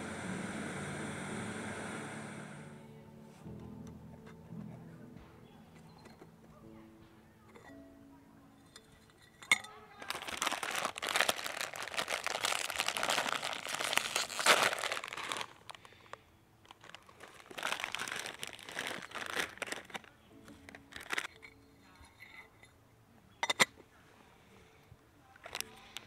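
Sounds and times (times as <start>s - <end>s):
plastic wrapper crinkling and tearing: 9.6s - 21.4s, 25.4s - 26.0s.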